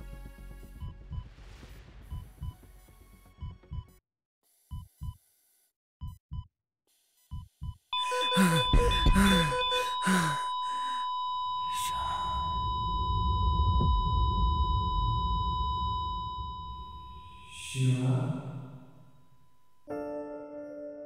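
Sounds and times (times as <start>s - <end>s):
breathing through oxygen mask: 8.0s - 13.1s
steady high electronic tone: 8.0s - 19.8s
man groaning sigh: 8.3s - 11.1s, 11.7s - 12.5s
low rumble: 12.0s - 17.6s
soft piano music: 19.9s - 21.0s.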